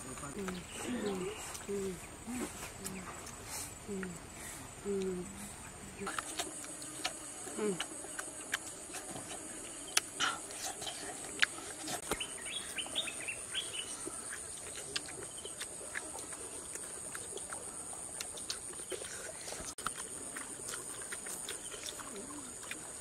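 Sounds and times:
bird chirping: 0:00.0 - 0:03.3, 0:12.0 - 0:15.9
high insect drone: 0:00.0 - 0:23.0
people eating with hands: 0:00.0 - 0:23.0.

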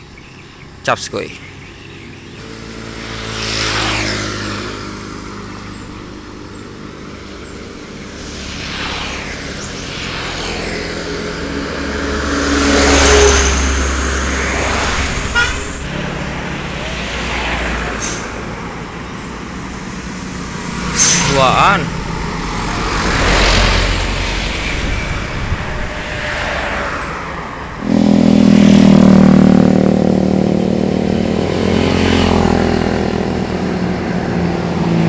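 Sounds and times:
vehicles passing: 0:00.0 - 0:35.0.

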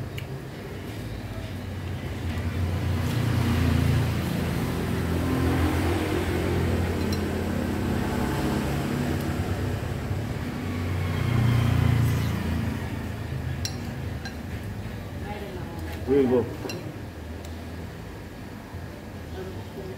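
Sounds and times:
vehicle engine passing: 0:02.0 - 0:14.2.

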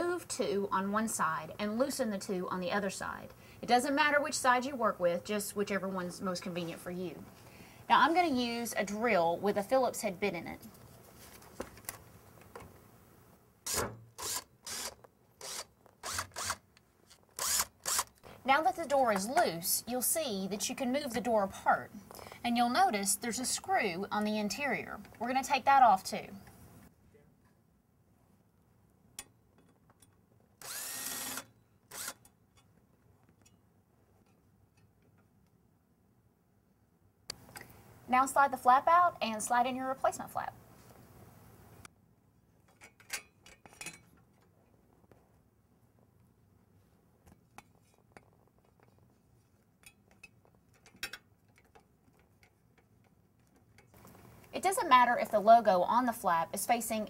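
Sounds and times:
power drill whining: 0:13.7 - 0:16.6, 0:17.4 - 0:18.1, 0:30.6 - 0:32.2.

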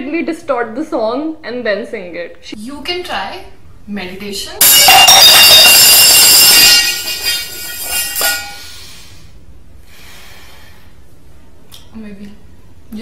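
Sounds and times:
shrill metallic ringing: 0:04.6 - 0:08.8.

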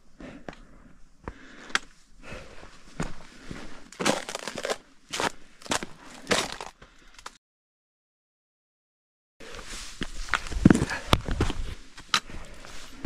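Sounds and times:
footsteps crunching on trail: 0:00.4 - 0:07.4, 0:09.4 - 0:13.0.

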